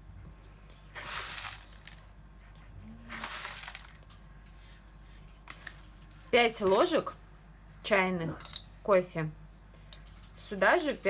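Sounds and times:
coffee granules rustling: 1.0 - 2.1, 3.1 - 4.2
foil bag crinkling: 1.0 - 2.1, 3.1 - 4.2.

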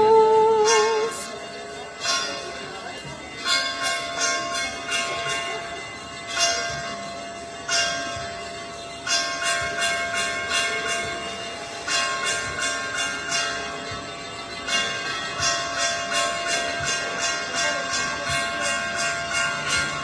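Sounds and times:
church bells ringing: 0.0 - 20.0.

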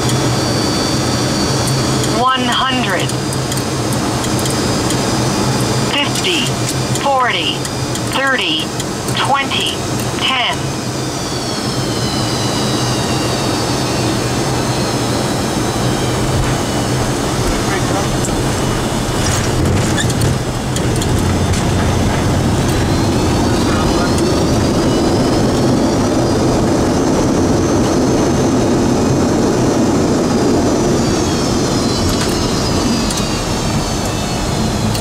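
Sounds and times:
jet engine and runway roar: 0.0 - 35.0.

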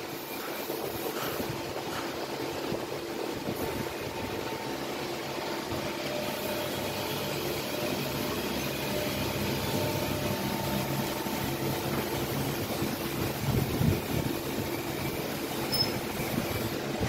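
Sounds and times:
mixer machine hum and whir: 0.0 - 17.0.

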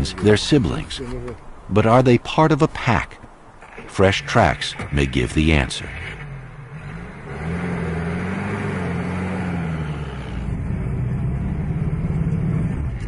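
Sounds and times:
jeep engine running inside cabin: 4.1 - 13.0.

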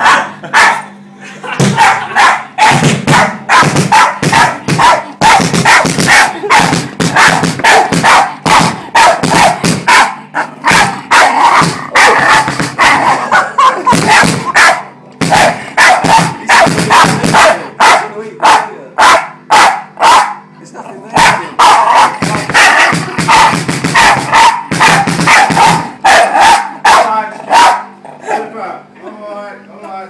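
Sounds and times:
dog barking: 0.0 - 0.9, 1.7 - 20.5, 21.2 - 28.5
kick drum: 1.6 - 2.0, 2.6 - 10.0, 10.6 - 13.0, 13.8 - 14.6, 15.2 - 17.6, 22.0 - 26.0.

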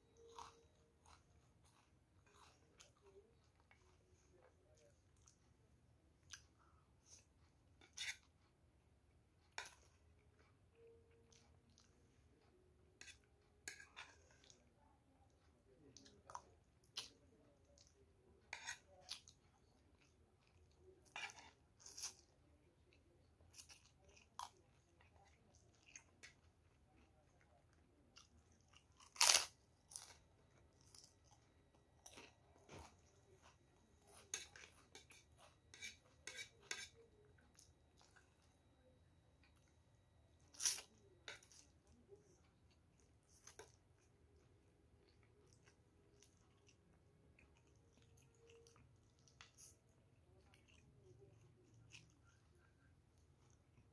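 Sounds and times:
faint chewing: 0.0 - 53.9
sharp cracker crunches: 29.0 - 30.1.

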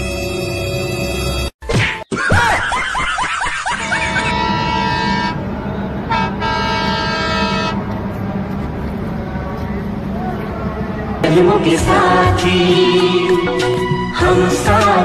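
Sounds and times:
train air horn blast: 4.2 - 7.8.

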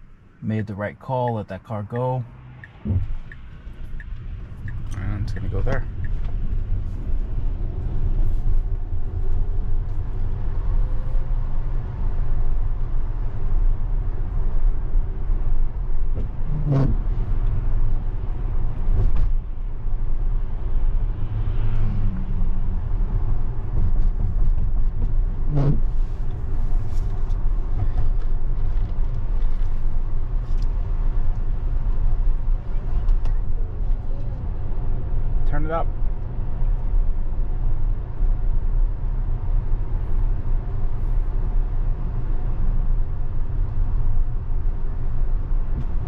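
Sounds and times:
car road noise rumble: 0.0 - 46.0
short thumps: 2.6 - 3.5.

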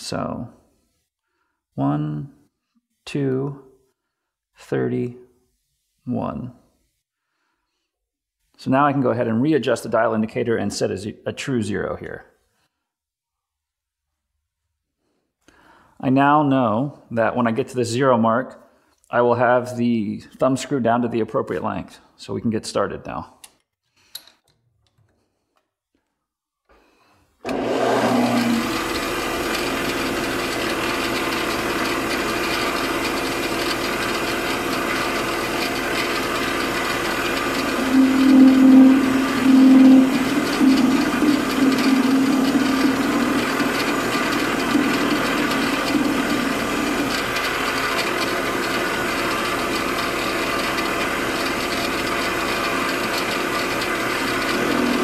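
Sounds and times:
lathe tool cutting metal: 27.5 - 55.0
metal lathe whining: 27.5 - 55.0.

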